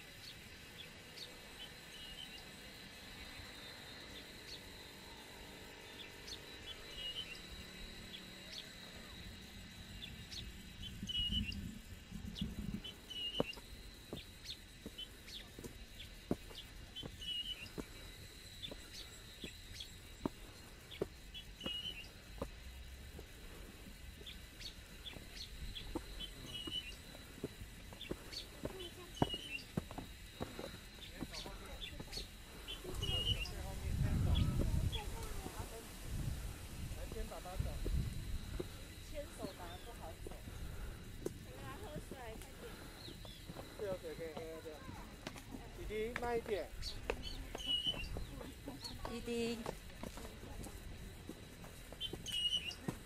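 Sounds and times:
insect drone: 0.0 - 53.0
bird chirping: 5.8 - 22.2, 24.1 - 29.8, 30.6 - 35.1, 45.8 - 49.4, 52.0 - 52.9
footsteps on stone steps: 13.4 - 23.9, 24.9 - 33.0, 37.7 - 53.0.

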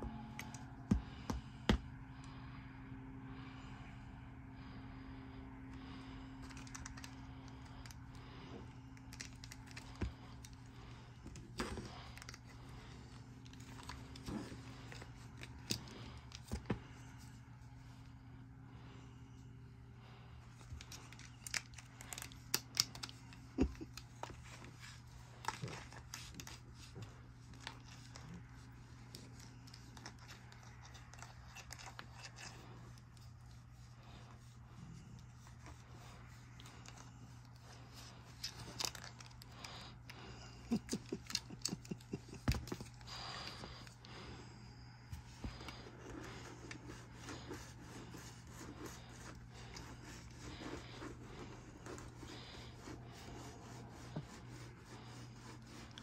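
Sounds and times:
steady low hum: 0.0 - 56.0
back scratcher scratching fur: 20.8 - 44.0, 45.1 - 56.0.

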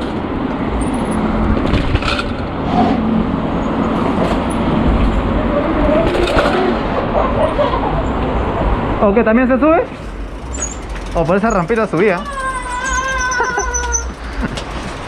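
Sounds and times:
rushing wind: 0.0 - 15.0
bike tyres rolling: 9.6 - 15.0.

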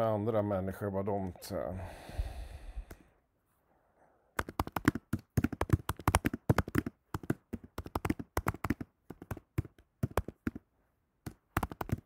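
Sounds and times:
keyboard typing: 4.4 - 10.6, 11.2 - 12.0.

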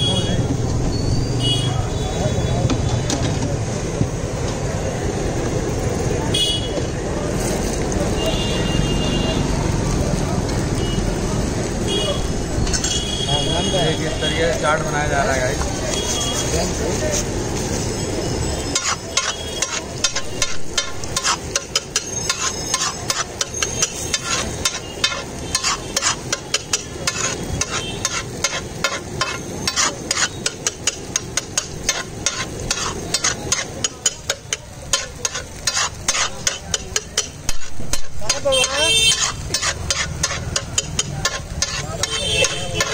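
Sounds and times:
food sizzling in oil: 10.3 - 42.9
metal spatula scraping griddle: 18.7 - 42.9.

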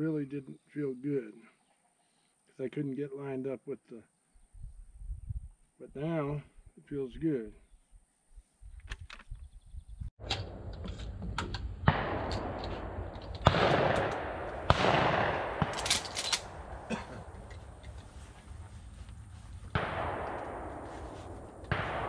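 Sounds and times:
shotgun shots with echo: 11.8 - 17.3, 19.7 - 22.0
distant shots: 11.8 - 17.4, 19.7 - 22.0.

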